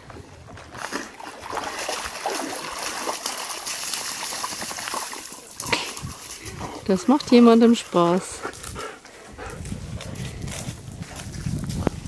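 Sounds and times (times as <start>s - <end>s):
dog splashing through water: 0.5s - 6.8s.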